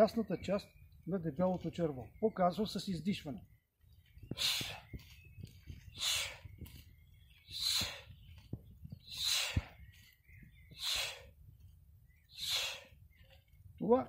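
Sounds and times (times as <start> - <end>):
sharp forceful exhalations: 4.3 - 4.9, 5.9 - 6.5, 7.4 - 8.1, 9.0 - 9.8, 10.8 - 11.4, 12.3 - 13.0.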